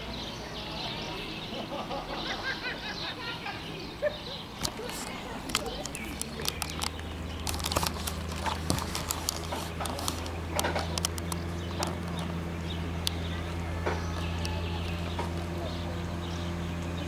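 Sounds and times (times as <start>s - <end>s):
outboard motor droning: 0.0s - 17.0s
sharp ticks and slaps: 4.6s - 12.4s.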